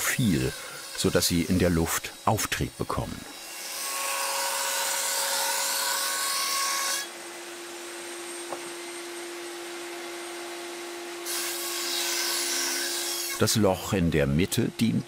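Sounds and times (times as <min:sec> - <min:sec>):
router cutter cutting foam: 0:00.0 - 0:07.4, 0:09.5 - 0:15.0
router motor humming: 0:00.0 - 0:11.4.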